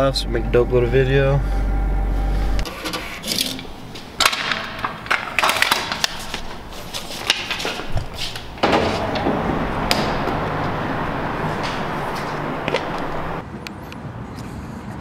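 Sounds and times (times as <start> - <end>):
footsteps: 4.8 - 13.4
rush of background noise: 6.5 - 15.0.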